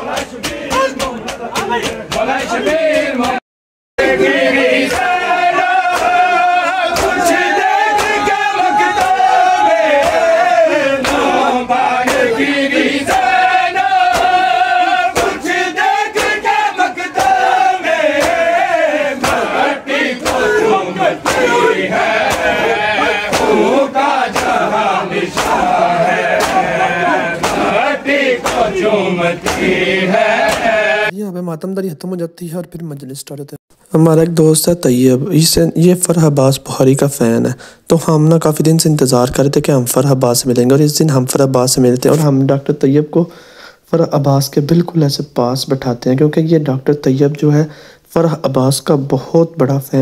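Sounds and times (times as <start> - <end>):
crowd of men chanting: 0.0 - 3.4, 4.0 - 31.1
hands slapping bare chests: 4.9 - 5.2, 5.8 - 6.3, 6.9 - 9.4, 10.0 - 10.4, 11.0 - 11.4, 12.0 - 12.3, 13.1 - 13.5, 14.1 - 14.5, 15.1 - 15.4, 16.2 - 16.6, 17.2 - 17.5, 18.2 - 18.5, 19.2 - 19.6, 20.2 - 20.6, 21.2 - 21.5, 22.2 - 23.6, 24.3 - 24.7, 25.3 - 26.8, 27.4 - 27.8, 28.4 - 28.8, 29.4 - 29.8, 30.4 - 30.7.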